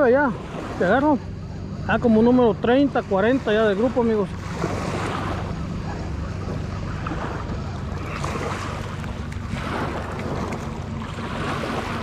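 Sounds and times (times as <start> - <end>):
low engine hum: 0.0 - 12.0
water lapping: 0.0 - 12.0
wind buffeting microphone: 0.0 - 12.0.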